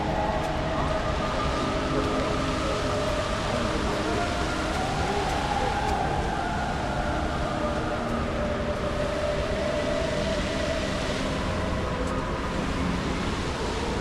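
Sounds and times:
fountain water jets rushing: 0.0s - 14.0s.

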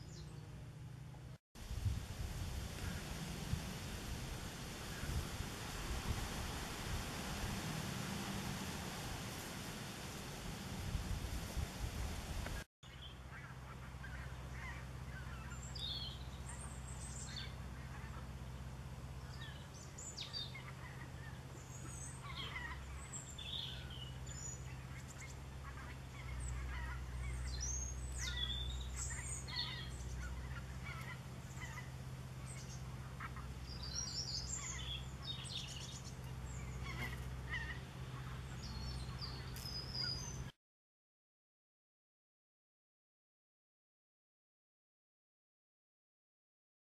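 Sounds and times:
steady low hum: 0.0s - 40.5s
bird calls and chirps: 12.8s - 18.6s, 19.2s - 40.5s.

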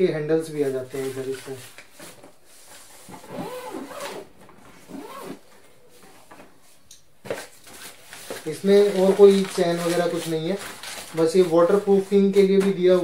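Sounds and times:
squeaky rubbing: 3.1s - 4.2s.

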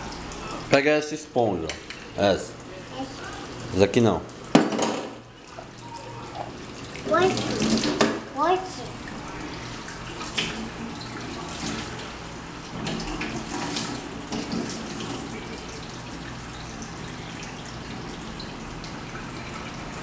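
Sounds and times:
dishwashing knocks and scrubbing: 4.5s - 5.7s, 6.3s - 8.8s, 12.7s - 15.3s
tap running into metal sink: 7.2s - 8.2s.

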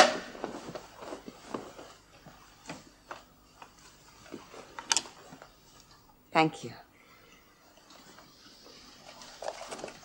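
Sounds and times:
soft footsteps: 0.1s - 6.0s.

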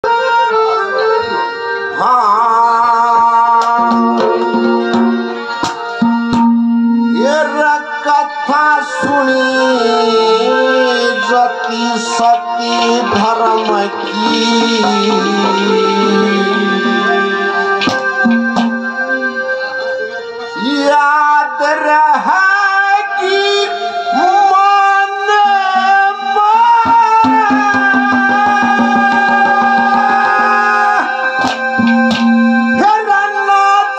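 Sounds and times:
man singing long notes: 0.0s - 5.6s, 7.0s - 33.9s
harmonium accompaniment: 0.0s - 33.9s
hand drum strokes: 3.6s - 6.6s, 12.3s - 19.2s.

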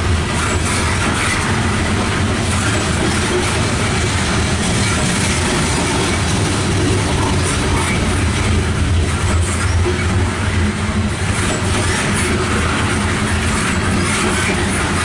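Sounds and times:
freight train wheels rumbling on rails: 0.0s - 15.0s.

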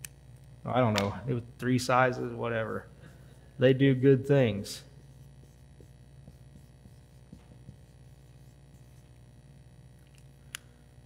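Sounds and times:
electrical hum: 0.0s - 11.0s
marker scratching on whiteboard: 4.9s - 9.2s.

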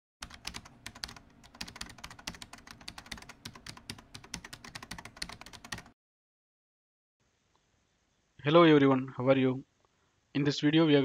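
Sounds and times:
fast keyboard typing: 0.2s - 6.0s.

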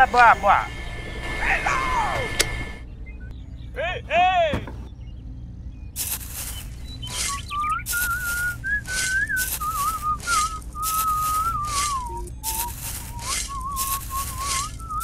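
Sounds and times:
pulsing hiss: 0.0s - 2.8s
person whistling a tune: 7.2s - 15.0s.

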